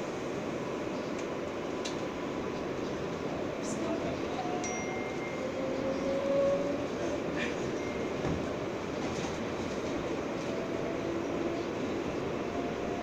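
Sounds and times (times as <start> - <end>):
subway car rumble: 0.0 - 13.0
thin high ring: 4.6 - 5.6.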